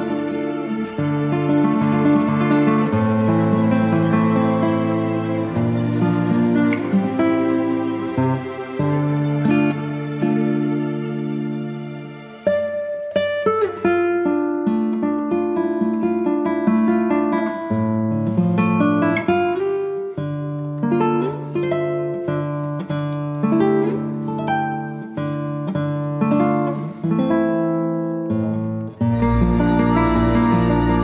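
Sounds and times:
sustained fuller music: 0.0s - 12.6s, 29.0s - 31.0s
acoustic guitar picking melody: 0.0s - 31.0s.

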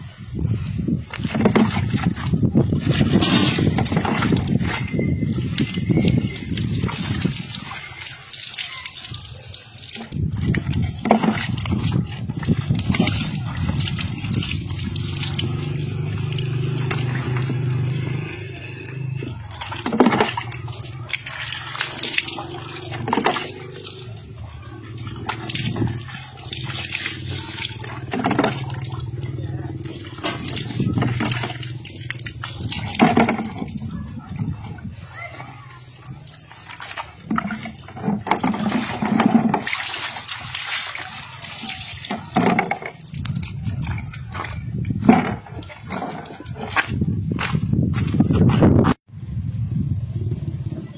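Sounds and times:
water pouring and splashing: 0.0s - 49.1s.

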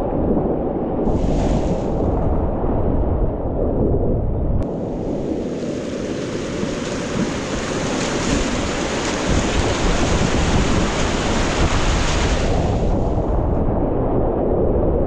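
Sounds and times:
whitewater rushing: 4.7s - 13.2s.

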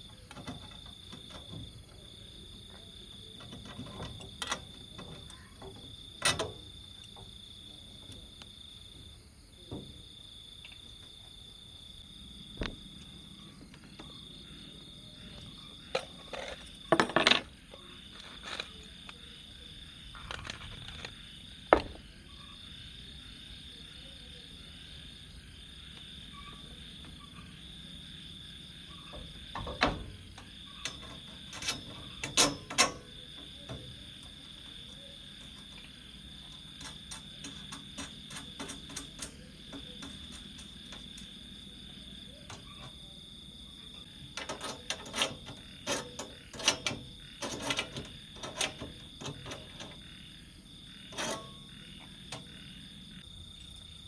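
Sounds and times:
metal poles knocking and clanking: 0.0s - 6.6s, 29.1s - 41.4s, 51.1s - 52.7s
insects trilling: 0.0s - 54.0s
small ticks: 30.4s - 41.4s.

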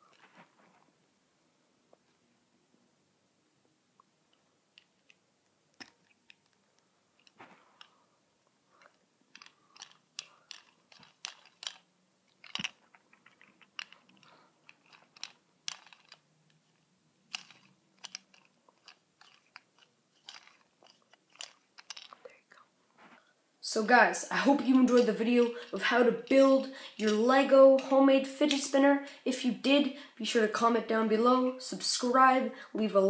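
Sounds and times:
plastic bricks clicking and snapping: 4.8s - 6.6s, 8.8s - 16.7s, 17.3s - 22.4s.

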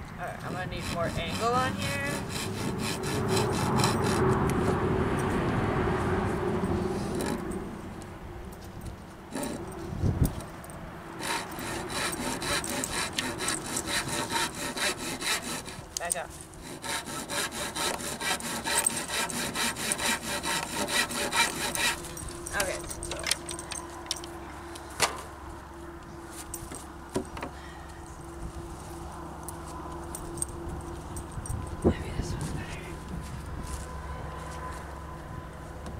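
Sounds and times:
handsaw cutting wood: 0.4s - 4.8s, 6.9s - 7.4s, 9.3s - 9.6s, 11.2s - 22.8s.

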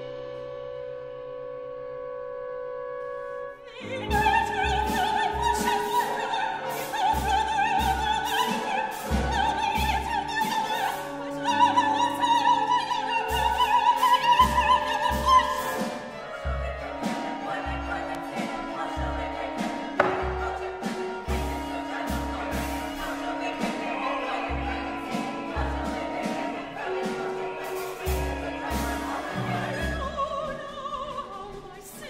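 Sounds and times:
small chamber ensemble: 0.2s - 32.0s
soprano singing with vibrato: 3.6s - 32.0s
low drum beats: 19.9s - 27.0s.

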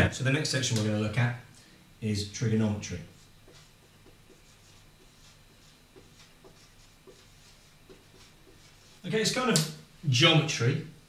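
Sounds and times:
marker writing on whiteboard: 3.2s - 9.0s.

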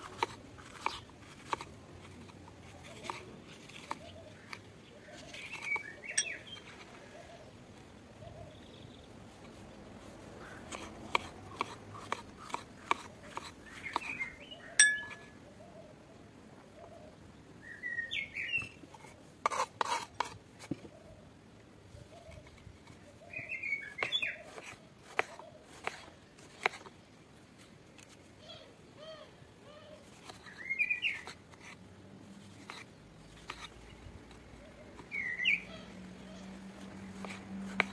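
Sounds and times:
knife slicing on wooden board: 0.0s - 4.6s, 10.4s - 15.3s, 19.4s - 20.4s, 23.9s - 26.9s, 36.8s - 37.9s
birds chirping: 3.8s - 7.6s, 13.3s - 16.0s, 16.8s - 18.8s, 22.0s - 24.8s, 28.4s - 31.4s, 34.6s - 37.9s
sharp clink: 14.8s - 15.3s.

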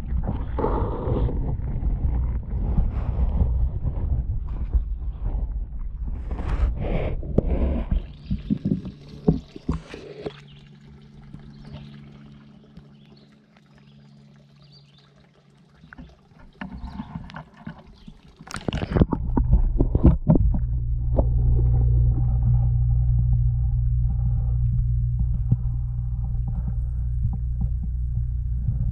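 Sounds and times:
muffled underwater rumble: 0.0s - 28.9s
water sloshing and splashing: 7.4s - 28.9s.

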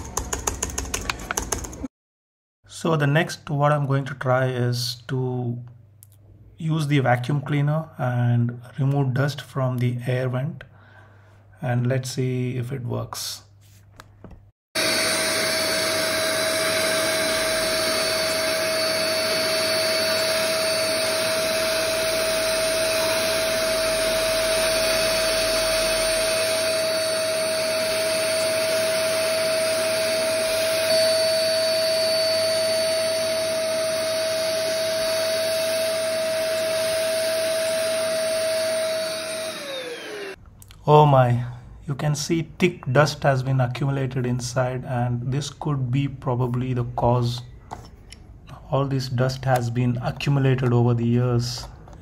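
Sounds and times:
handheld vacuum cleaner whine: 14.8s - 40.4s.

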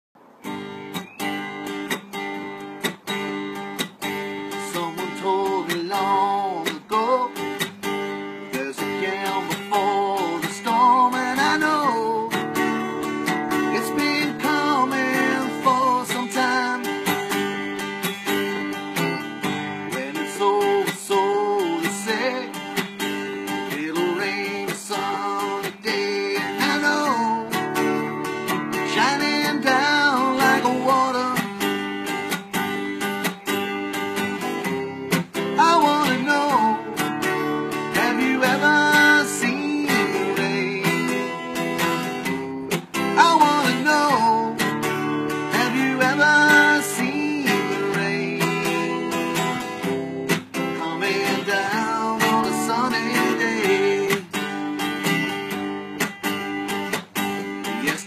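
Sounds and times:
acoustic guitar strumming: 0.2s - 58.0s
man singing: 4.5s - 7.8s, 8.5s - 12.6s, 13.6s - 17.1s, 19.8s - 22.9s, 23.6s - 27.9s, 28.7s - 31.7s, 34.4s - 54.6s, 57.6s - 58.0s.

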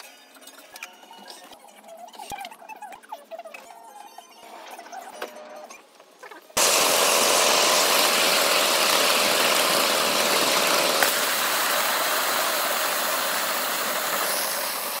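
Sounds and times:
steam locomotive hissing: 6.6s - 15.0s.

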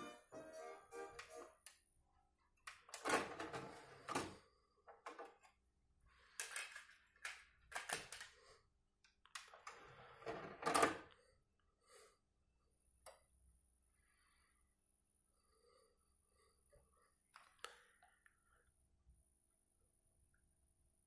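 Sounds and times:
plastic cd cases clicking: 6.3s - 8.3s.

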